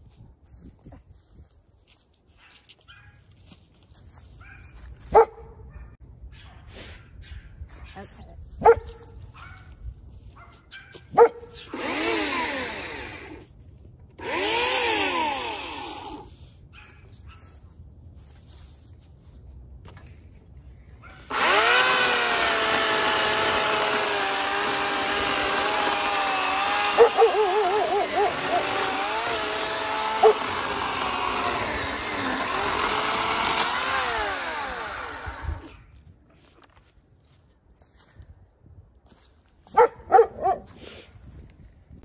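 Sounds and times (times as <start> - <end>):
electric chainsaw cutting wood: 11.6 - 16.4, 21.3 - 35.8.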